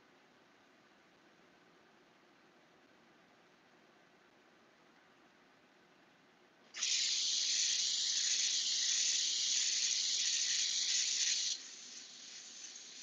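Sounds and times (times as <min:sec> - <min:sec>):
airbrush hissing: 0:06.7 - 0:13.0.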